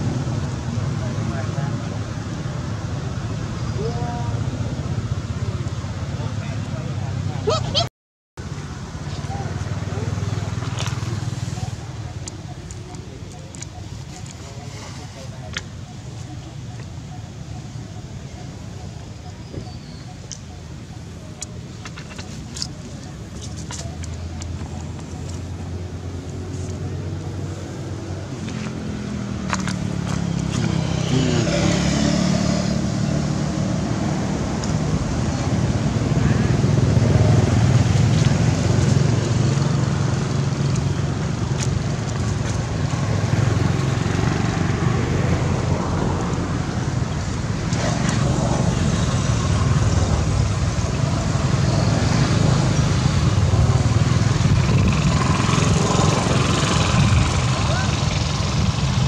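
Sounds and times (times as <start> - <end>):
motorbike engine revving: 28.7 - 41.4, 47.6 - 59.0.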